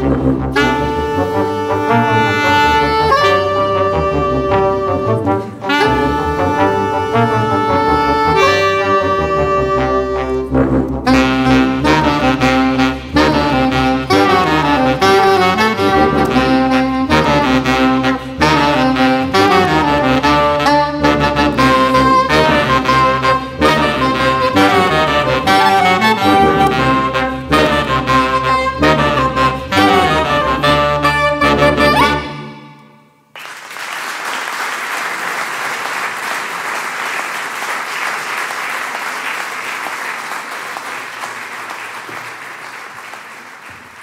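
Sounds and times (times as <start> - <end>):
acoustic jazz ensemble playing: 0.0 - 32.8.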